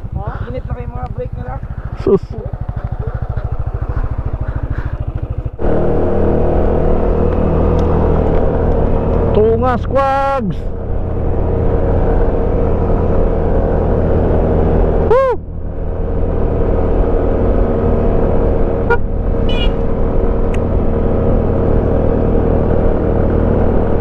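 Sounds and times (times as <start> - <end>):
motorcycle engine running: 0.0 - 24.0
tone rising and falling in pitch: 5.6 - 10.3.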